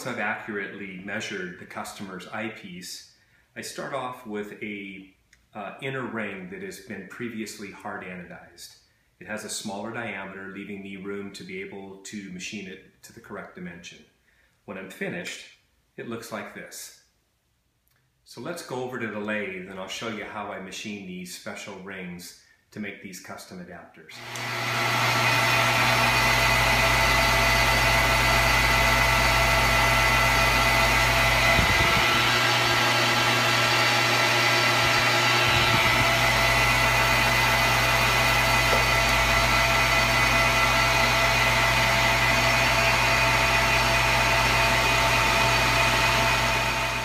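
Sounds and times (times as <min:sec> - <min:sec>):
high cutting whine: 0:24.2 - 0:47.0
lathe motor hum: 0:24.2 - 0:47.0.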